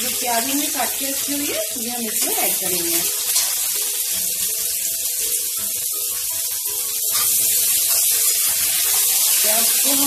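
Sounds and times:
onions sizzling in hot oil: 0:00.0 - 0:10.0
spoon scraping against pan: 0:07.0 - 0:09.6.

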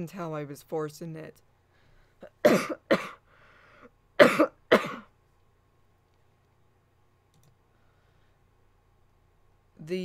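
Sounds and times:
woman coughing: 0:02.2 - 0:03.2, 0:04.2 - 0:05.1
noisy breath drawn in: 0:03.3 - 0:03.9, 0:07.7 - 0:08.5.

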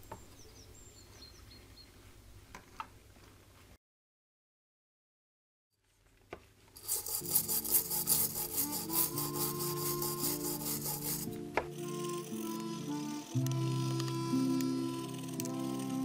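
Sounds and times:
brush scrubbing metal: 0:06.8 - 0:12.5
background music: 0:06.8 - 0:16.0.

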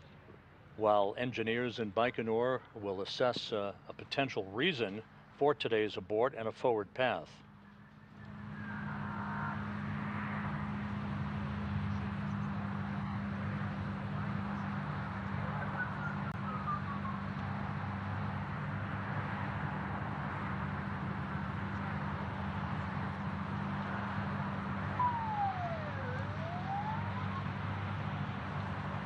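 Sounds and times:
steady low hum: 0:07.5 - 0:29.0
faint falling whistle: 0:15.8 - 0:17.3, 0:24.9 - 0:27.5.

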